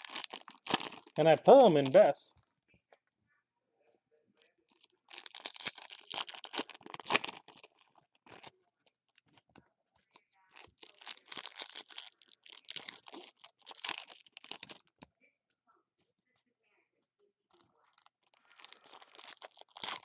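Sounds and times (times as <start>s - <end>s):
foil wrappers tearing and crinkling: 0.0s - 2.0s, 4.9s - 8.6s, 10.6s - 15.0s, 17.6s - 20.0s.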